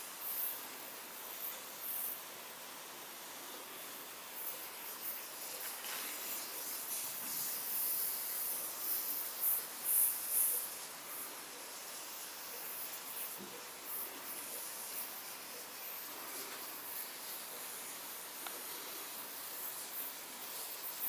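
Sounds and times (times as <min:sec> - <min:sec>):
soda hissing from can leak: 0:00.0 - 0:21.0.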